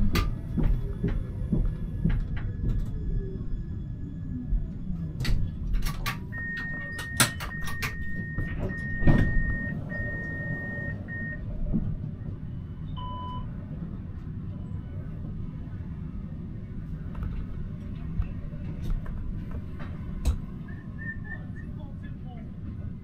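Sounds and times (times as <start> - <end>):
tram doors shutting: 0.0 - 21.9
tram low hum: 0.0 - 23.0
high warning beep: 6.3 - 11.4.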